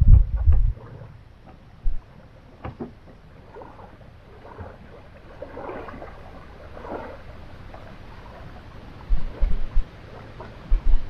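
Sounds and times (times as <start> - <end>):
wind thump on microphone: 0.0 - 3.2, 9.1 - 11.0
small waves lapping: 0.6 - 11.0.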